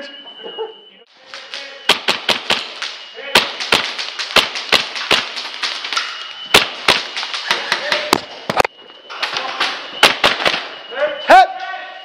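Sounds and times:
airsoft gunshots: 0:01.3 - 0:08.3, 0:09.9 - 0:10.8.

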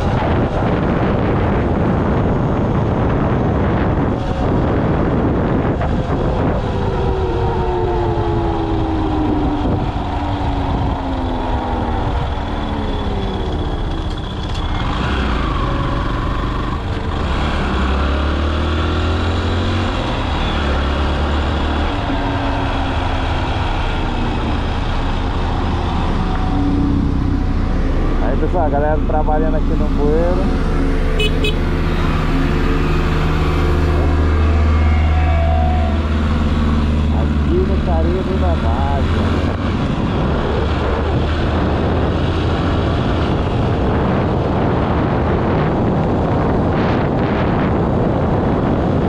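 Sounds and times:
steady low rumble: 0:00.0 - 0:17.2, 0:21.5 - 0:49.0
rushing wind: 0:00.0 - 0:49.0
motorcycle engine running: 0:21.9 - 0:49.0.

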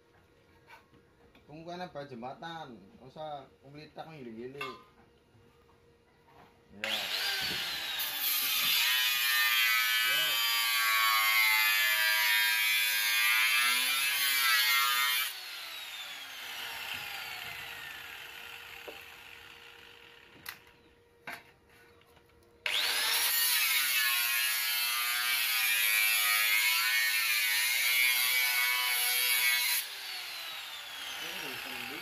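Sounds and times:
angle grinder cutting metal: 0:06.8 - 0:20.6, 0:22.6 - 0:32.0.

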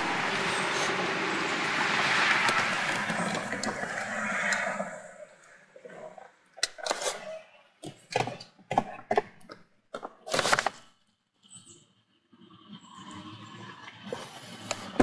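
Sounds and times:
rumbling noise: 0:00.0 - 0:05.4.

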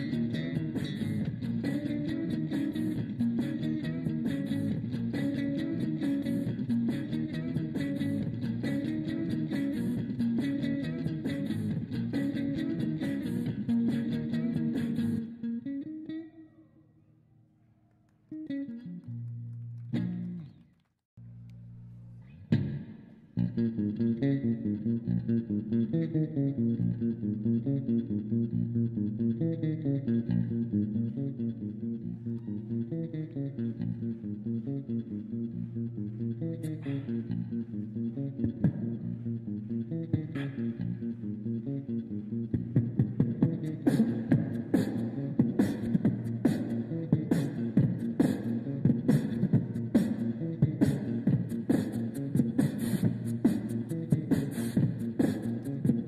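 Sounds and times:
plucked bass and guitar: 0:00.0 - 0:16.4, 0:18.4 - 0:20.6, 0:21.2 - 0:56.0
percussive beat: 0:38.5 - 0:39.0, 0:42.5 - 0:56.0.

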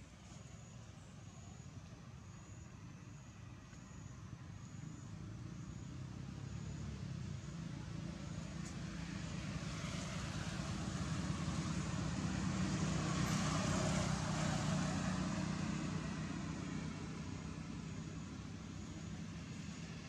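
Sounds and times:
motor vehicle rumble: 0:04.5 - 0:20.0.

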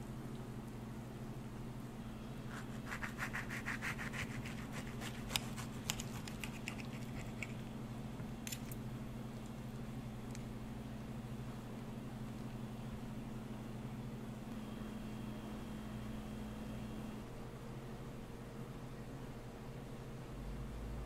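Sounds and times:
steady low hum: 0:00.0 - 0:21.0
knife sawing through crisp shell: 0:02.5 - 0:07.6.

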